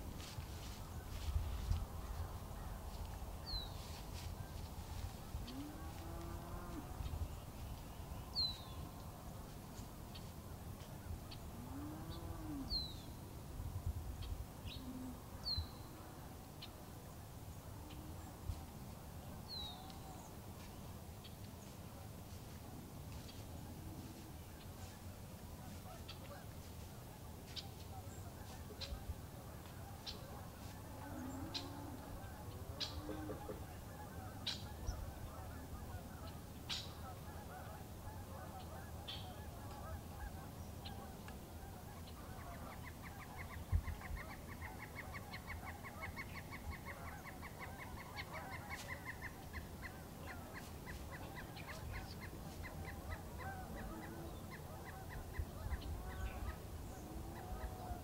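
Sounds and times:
small birds chirping: 0:17.5 - 0:37.1
geese honking: 0:25.6 - 0:43.5, 0:44.2 - 0:58.0.

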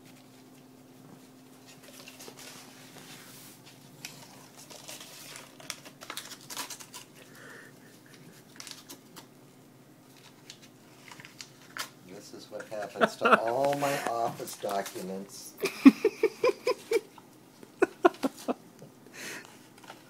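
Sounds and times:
cat tearing paper: 0:04.0 - 0:07.2, 0:08.1 - 0:09.3.

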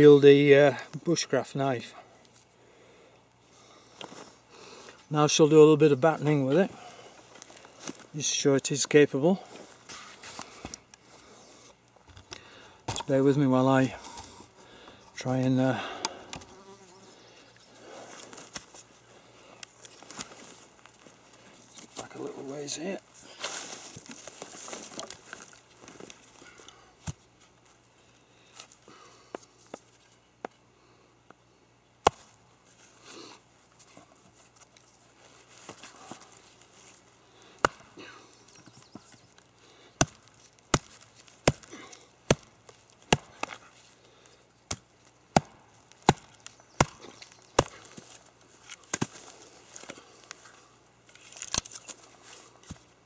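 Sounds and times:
footsteps in dry leaves: 0:23.3 - 0:26.4.

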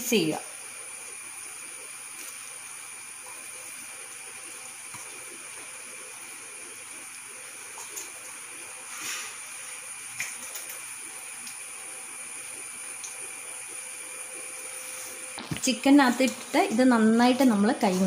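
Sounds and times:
steady hiss: 0:08.5 - 0:10.1.

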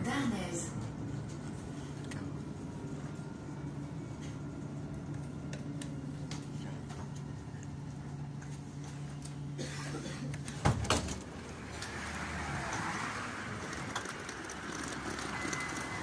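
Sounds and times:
tram electric hum: 0:00.0 - 0:16.0.

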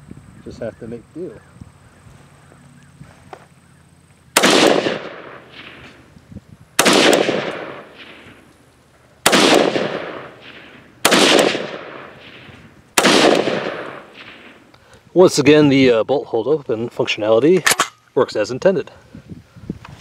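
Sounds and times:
rifle shots: 0:04.3 - 0:06.0, 0:06.8 - 0:08.5, 0:09.2 - 0:14.7.

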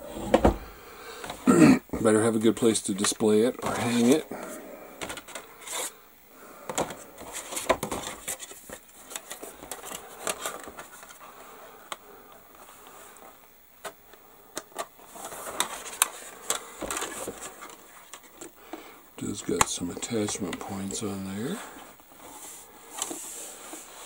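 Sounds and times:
plastic parts clicking and scraping: 0:05.0 - 0:05.9, 0:06.6 - 0:11.2, 0:11.9 - 0:18.8, 0:19.4 - 0:24.0.

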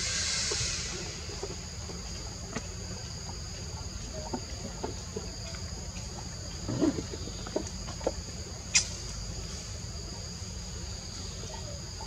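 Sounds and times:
high-pitched insect drone: 0:00.0 - 0:02.3.

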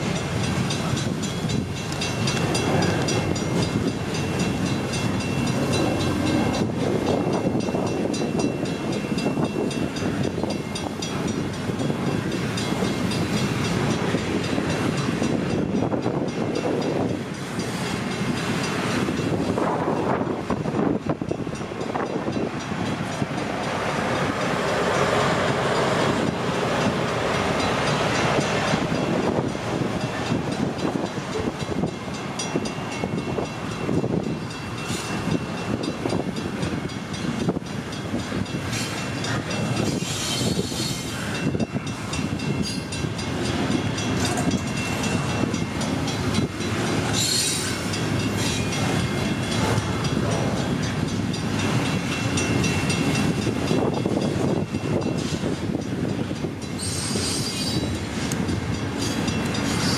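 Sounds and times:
train wheels clicking over rail joints: 0:00.0 - 0:59.9
high-pitched wheel squeals: 0:47.1 - 0:48.7, 0:56.7 - 0:58.0, 0:59.0 - 0:59.9.

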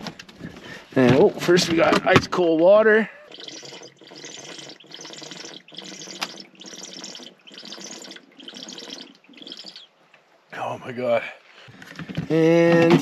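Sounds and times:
water glugging out of a bottle: 0:03.2 - 0:09.9.

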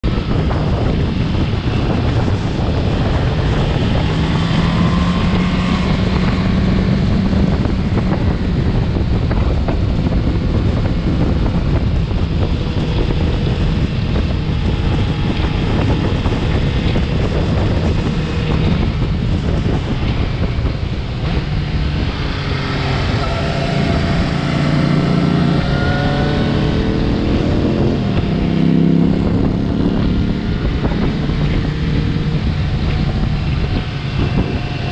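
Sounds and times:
motorcycle engine accelerating: 0:00.0 - 0:34.9
wind noise on microphone: 0:00.0 - 0:34.9.

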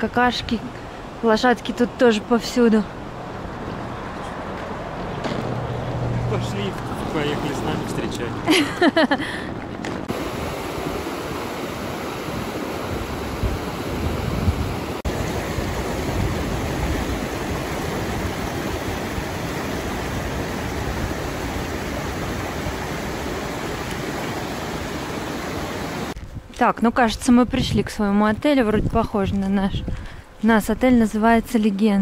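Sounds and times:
river rushing over rocks: 0:10.1 - 0:26.2.

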